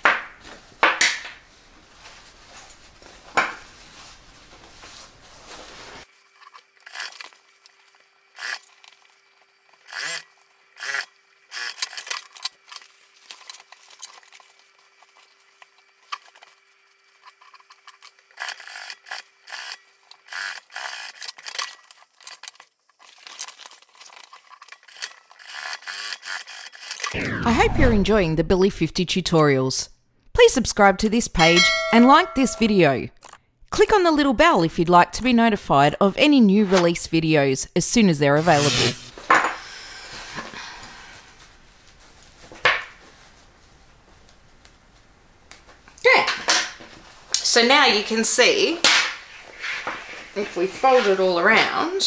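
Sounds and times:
canvas fabric rustling: 1.5 - 6.1.

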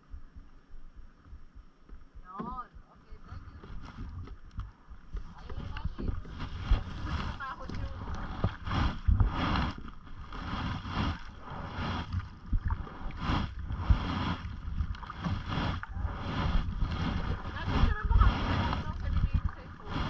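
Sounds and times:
wind on microphone: 2.8 - 20.0
canoe paddle splashing in water: 5.2 - 20.0.

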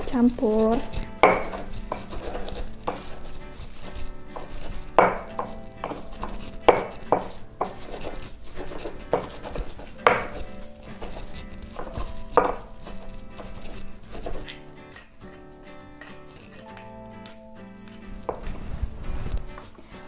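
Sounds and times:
pestle pounding in mortar: 0.0 - 15.4
pestle grinding and rubbing: 0.0 - 20.0.

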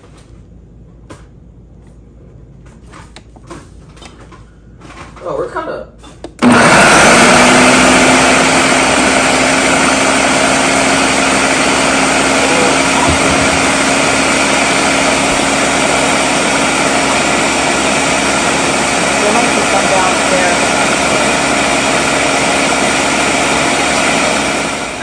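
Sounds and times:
blender motor whining: 6.4 - 25.0.

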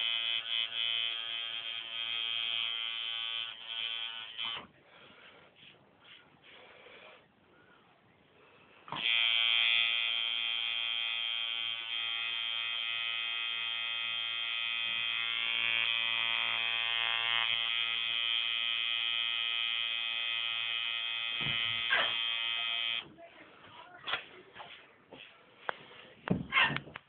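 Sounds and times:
tattoo machine buzzing: 0.0 - 4.7, 8.9 - 23.1.

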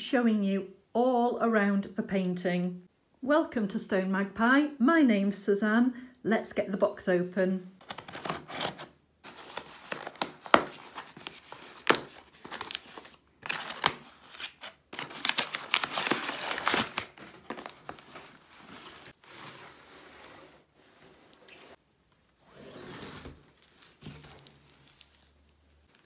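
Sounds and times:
packing paper crinkling: 7.8 - 19.2, 23.5 - 26.0
box sliding out: 18.8 - 21.8, 22.5 - 23.4.

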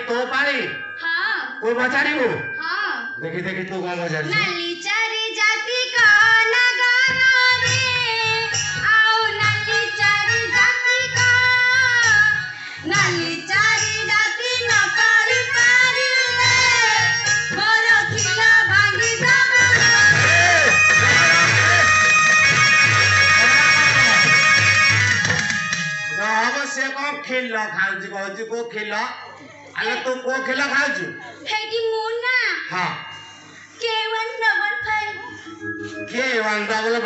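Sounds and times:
low rhythmic beat: 17.2 - 26.6.

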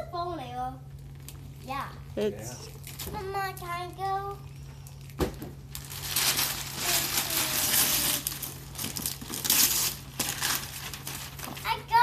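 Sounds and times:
wrapping paper tearing and crumpling: 2.6 - 12.0.

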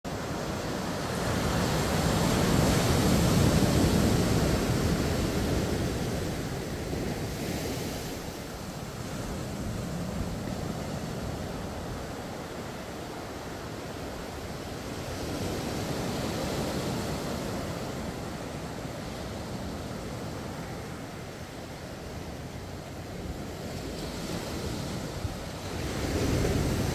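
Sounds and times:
ocean surf breaking on beach: 0.1 - 26.9.

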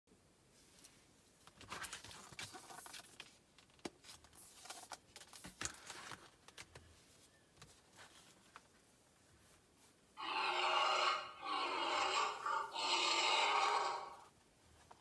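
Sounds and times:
book rustling and scraping: 1.6 - 3.3, 4.0 - 8.8.

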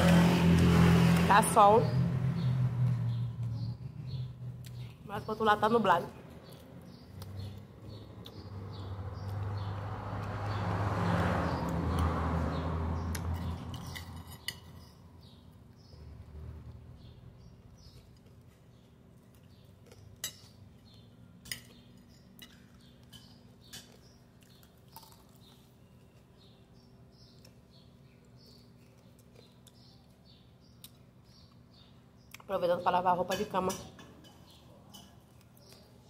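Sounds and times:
cutlery clinking against plate: 13.3 - 14.9, 20.0 - 20.6, 21.4 - 24.1, 33.3 - 35.4.

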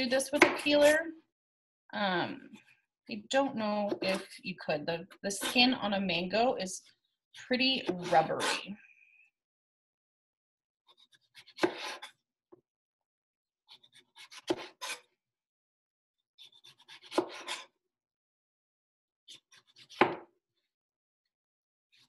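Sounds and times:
knife cutting mango skin: 10.9 - 12.2, 13.7 - 15.2, 16.4 - 17.8, 19.3 - 20.3.

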